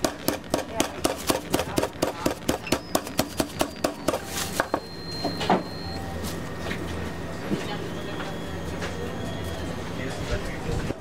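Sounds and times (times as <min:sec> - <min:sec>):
meat mallet pounding on board: 0:00.0 - 0:04.2.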